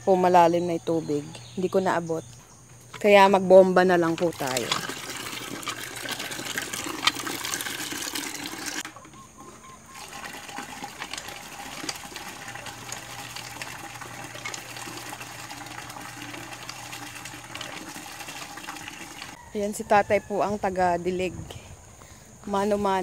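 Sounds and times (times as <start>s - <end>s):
pump handle working: 3.8s - 19.4s
water gushing into plastic bucket: 4.1s - 9.2s, 9.8s - 19.4s.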